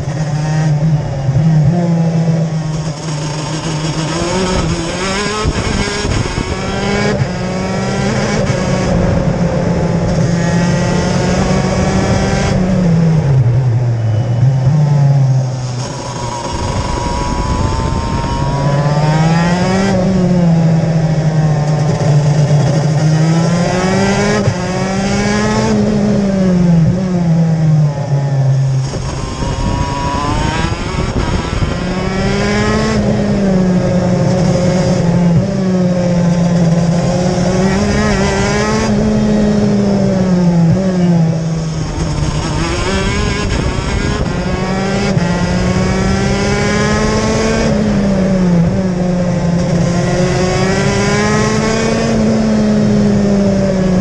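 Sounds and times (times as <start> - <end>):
kart engine racing: 0.0 - 54.0.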